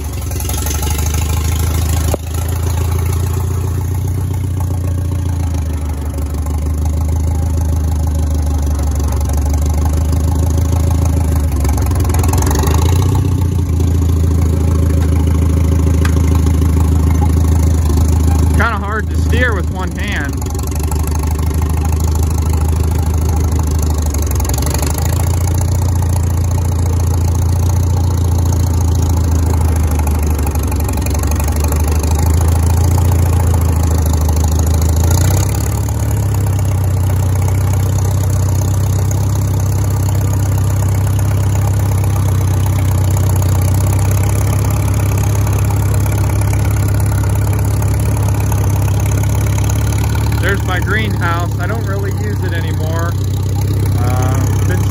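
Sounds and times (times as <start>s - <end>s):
tractor engine running: 0.0s - 54.9s.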